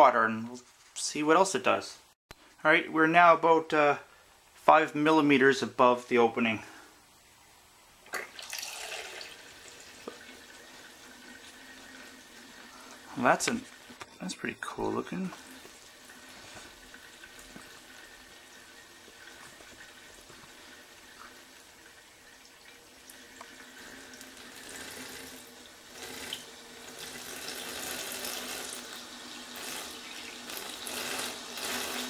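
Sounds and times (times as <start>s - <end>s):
vacuum motor churning water: 29.6s - 32.0s.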